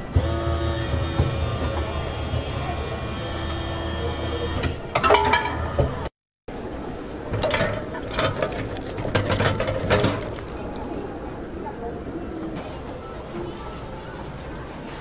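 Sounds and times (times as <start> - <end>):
vending machine mechanism humming: 0.0 - 12.0
lollipops clattering: 7.5 - 11.7.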